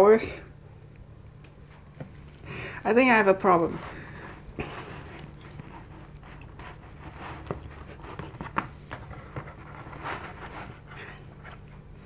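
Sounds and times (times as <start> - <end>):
low room hum: 0.0 - 12.0
crust scraping on cardboard: 3.5 - 11.6.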